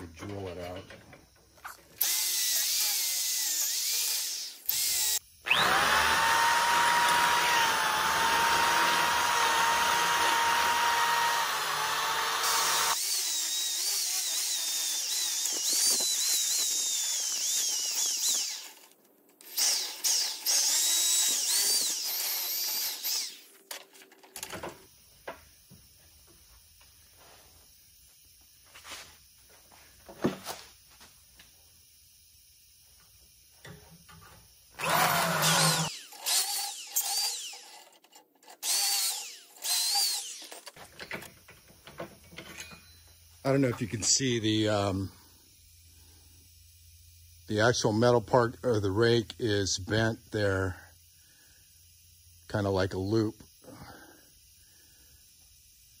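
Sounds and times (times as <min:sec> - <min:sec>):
electric drill boring into wood: 0:02.0 - 0:23.8, 0:34.8 - 0:40.8.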